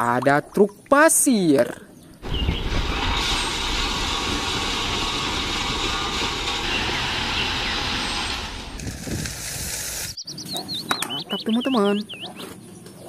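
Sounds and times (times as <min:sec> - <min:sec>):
dump truck unloading gravel: 0:02.2 - 0:10.2.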